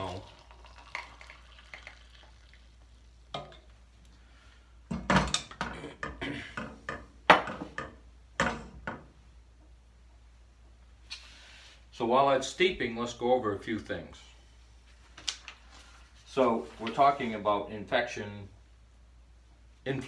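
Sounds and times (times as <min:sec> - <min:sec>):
kitchenware knocks and clinks: 0:04.9 - 0:09.1.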